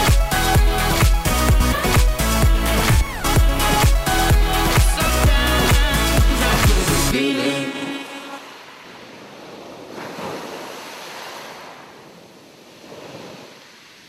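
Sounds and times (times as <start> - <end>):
waves breaking on a beach: 7.2 - 14.0.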